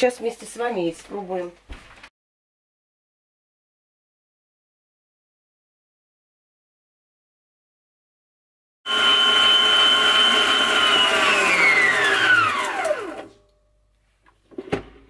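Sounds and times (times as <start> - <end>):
stand mixer motor whining: 8.9 - 13.4.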